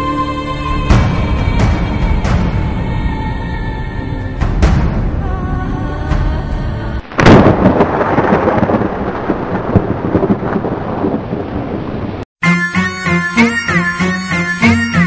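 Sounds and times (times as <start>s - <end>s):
thunder crack rumbling: 4.4s - 12.3s.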